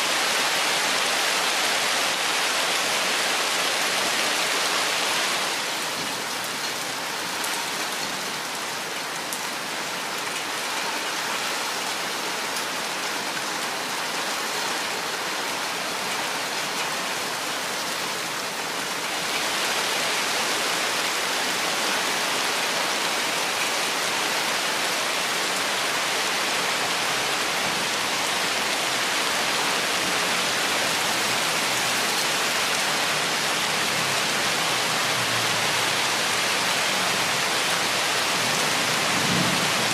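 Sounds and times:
steady rain falling: 0.0s - 39.9s.

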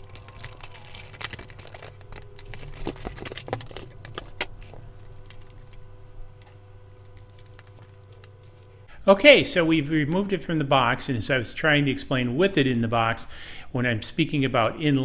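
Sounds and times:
cardboard and plastic wrap rustling: 0.0s - 5.8s
steady low hum: 0.0s - 15.0s.

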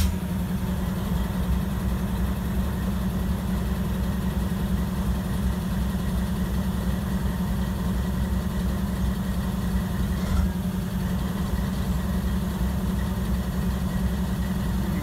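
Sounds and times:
diesel locomotive idling: 0.0s - 15.0s.

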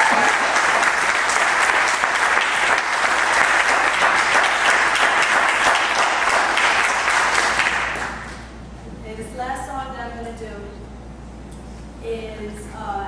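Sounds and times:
audience applauding: 0.0s - 8.4s.

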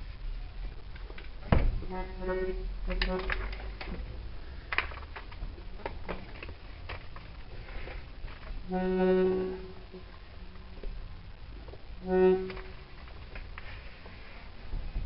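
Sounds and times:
held accordion reed note: 8.7s - 10.0s, 12.0s - 12.8s.

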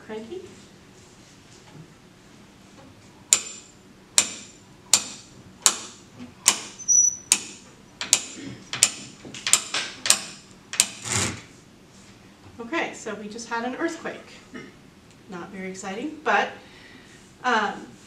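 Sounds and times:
short squeak: 6.8s - 7.4s.

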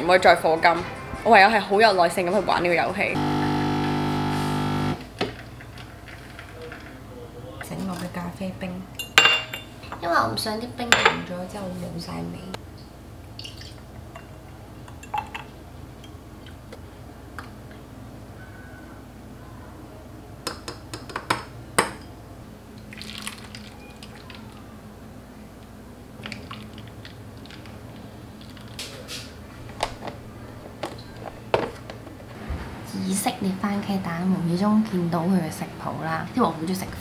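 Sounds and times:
glass and dishes clinking: 9.0s - 10.0s
liquid pouring: 22.8s - 24.6s, 26.2s - 28.8s.

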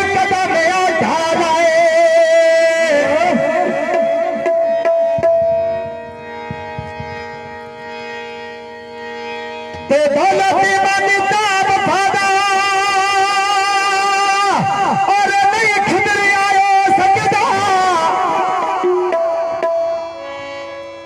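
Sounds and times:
man singing through microphone: 0.0s - 4.6s, 9.9s - 19.2s
sustained instrumental chord: 0.0s - 21.0s.

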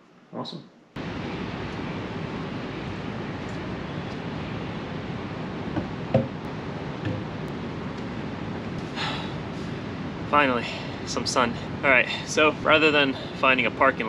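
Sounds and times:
board thumping on table: 5.8s - 6.4s, 7.0s - 7.3s
light knocks: 5.8s - 6.4s, 7.0s - 7.3s.

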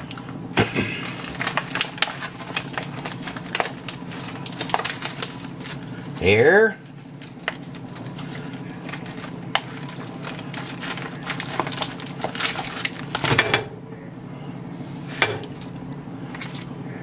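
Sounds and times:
plastic wrap crinkling and tearing: 0.8s - 13.3s.

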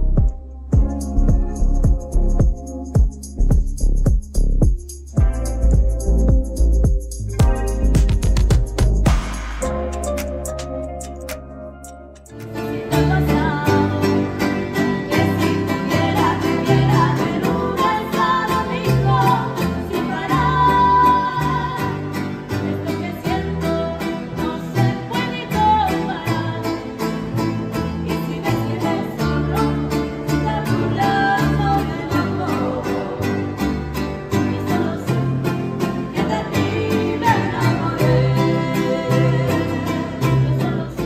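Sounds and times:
plucked bass notes: 0.0s - 41.0s
strummed guitars: 0.0s - 41.0s
woman singing: 12.6s - 27.2s, 28.0s - 41.0s.

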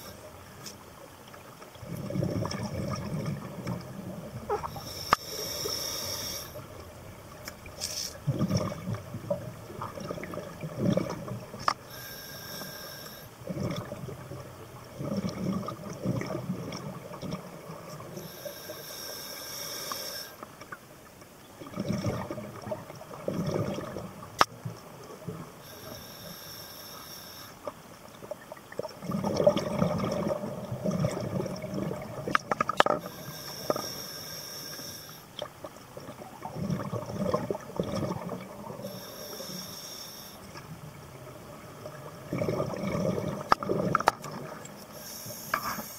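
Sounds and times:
exhaled bubbles gurgling: 1.7s - 11.7s, 12.4s - 18.8s, 21.6s - 26.0s, 28.2s - 33.7s, 35.4s - 39.6s, 40.5s - 45.0s
diver breathing through regulator: 4.6s - 6.7s, 11.8s - 13.4s, 18.2s - 20.4s, 25.6s - 27.6s, 33.0s - 35.3s, 38.8s - 40.4s, 44.9s - 45.9s.

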